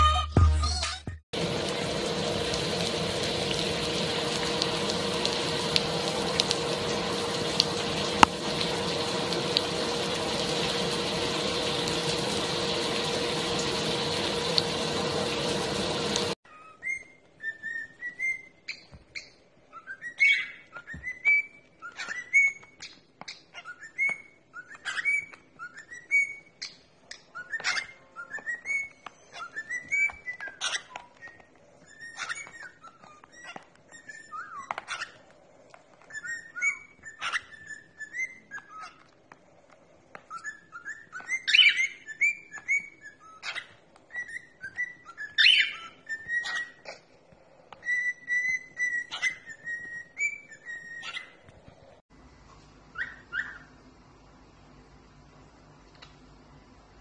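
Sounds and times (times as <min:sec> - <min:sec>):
cockatiel whistling: 0:02.8 - 0:22.6, 0:27.4 - 0:34.7, 0:40.3 - 0:46.8, 0:47.8 - 0:51.4.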